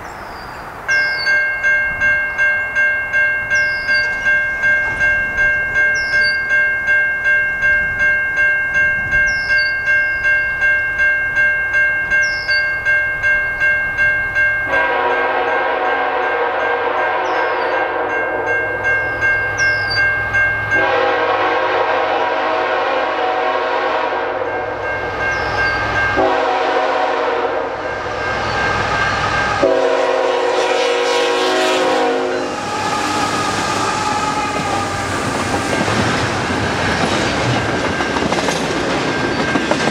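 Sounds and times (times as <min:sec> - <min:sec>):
crossing bell ringing: 0:00.0 - 0:39.9
locomotive air horn blasts: 0:14.7 - 0:18.4, 0:20.8 - 0:24.8, 0:26.1 - 0:28.1, 0:29.5 - 0:35.4
train wheels rushing past: 0:20.8 - 0:39.9.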